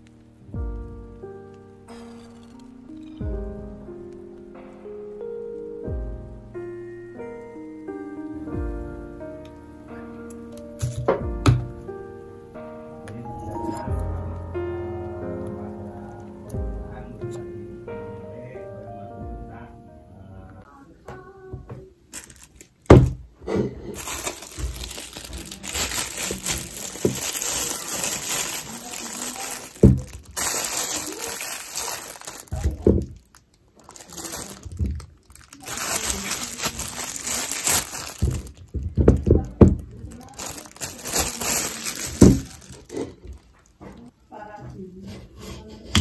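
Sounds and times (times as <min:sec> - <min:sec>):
plastic bag crinkling: 0:22.1 - 0:44.1.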